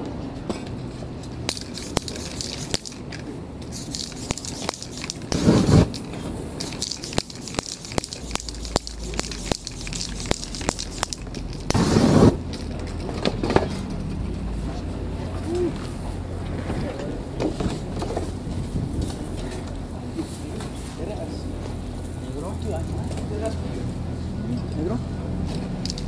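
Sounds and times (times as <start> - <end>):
spray paint can hissing: 1.5 - 12.4
burst of flame: 4.1 - 6.0, 6.6 - 12.6.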